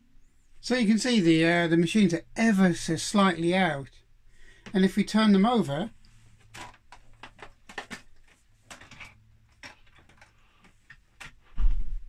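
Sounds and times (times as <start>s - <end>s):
plastic case knocks and clicks: 6.5s - 8.1s.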